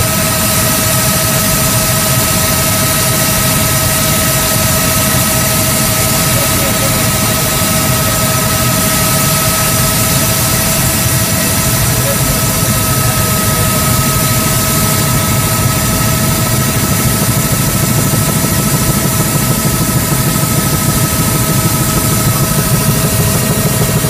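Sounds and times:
helicopter engine and rotor noise: 0.0 - 24.0.

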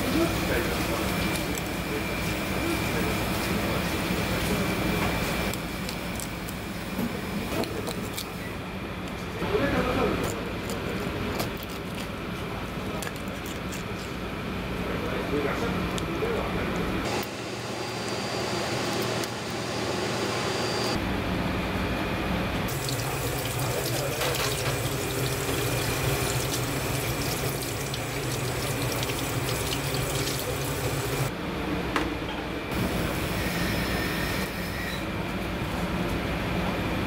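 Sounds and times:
tap water running into sink: 22.7 - 31.3.

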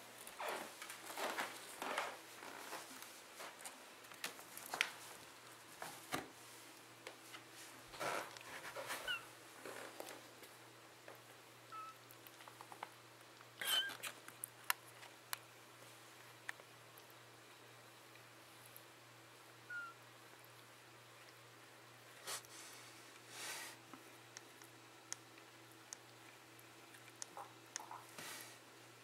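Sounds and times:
kittens rustling on towel: 0.2 - 10.6, 22.0 - 24.1, 26.8 - 28.7
kittens squeaking: 9.0 - 9.3, 11.7 - 12.0, 13.6 - 14.2, 19.7 - 20.0.

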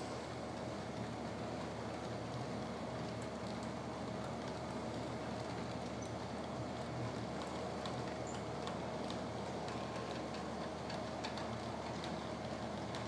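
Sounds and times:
model train running hum: 0.0 - 13.0
wheels clicking over rail joints: 6.8 - 13.0.

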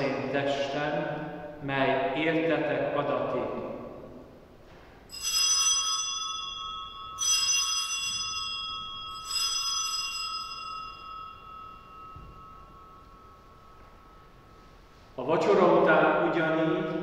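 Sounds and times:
altar bell ringing: 5.0 - 17.0.

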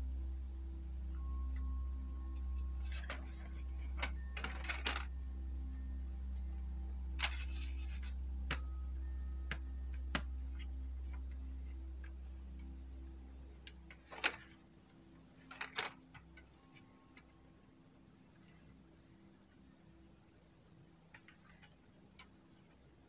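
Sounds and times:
low hum: 0.0 - 23.0
small plastic parts clicking: 15.4 - 17.3.

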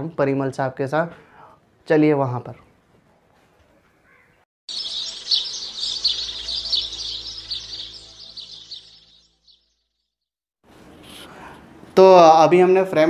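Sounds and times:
small birds chirping: 4.0 - 9.8.

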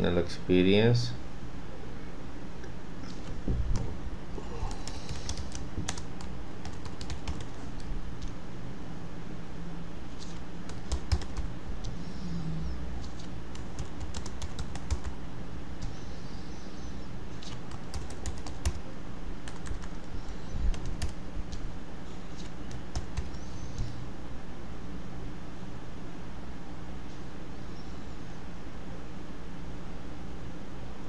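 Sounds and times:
steady low hum: 0.0 - 31.0
keyboard typing: 4.7 - 8.4, 10.2 - 12.0, 13.0 - 15.2, 17.4 - 18.8, 19.4 - 20.1, 20.7 - 21.6, 22.3 - 24.0.

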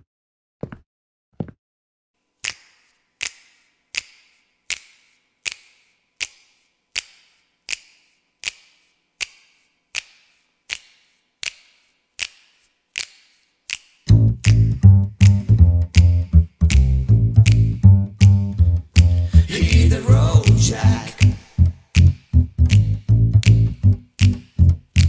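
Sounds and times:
finger snaps: 2.4 - 25.0
jazz band with double bass: 14.1 - 21.0, 21.6 - 25.0.

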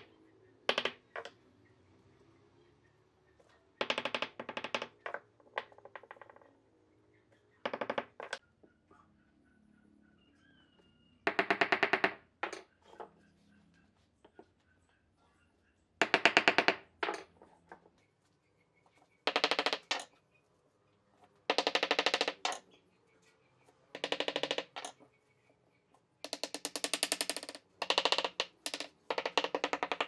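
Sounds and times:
logs creaking against each other: 0.7 - 1.4, 3.8 - 6.7, 7.6 - 8.4, 16.0 - 18.0, 19.2 - 20.1, 21.4 - 22.6, 23.9 - 25.1, 26.2 - 30.0.

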